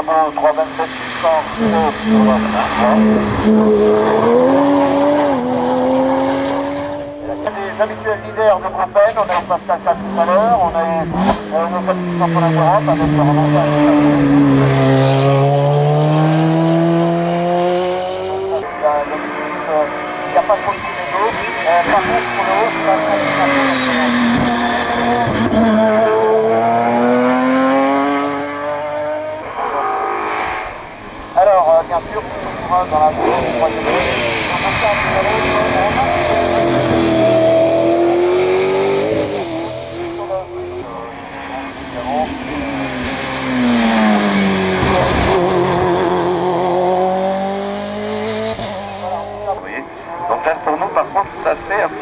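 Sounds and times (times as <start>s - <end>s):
distant engine: 0.0s - 52.0s
race car engine accelerating: 0.0s - 52.0s.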